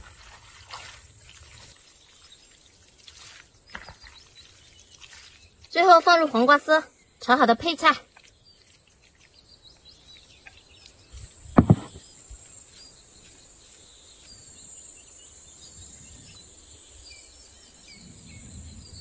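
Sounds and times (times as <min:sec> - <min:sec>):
birds chirping: 0:01.5 - 0:18.8
sharp knocks: 0:11.6 - 0:12.0.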